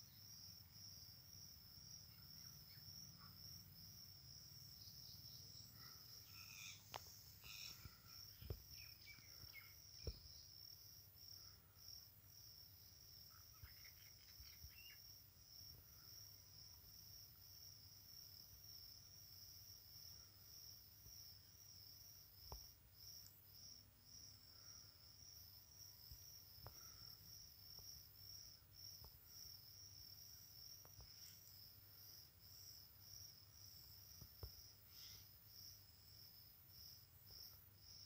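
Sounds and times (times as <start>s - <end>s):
high-pitched insect trilling: 6.2s - 10.4s.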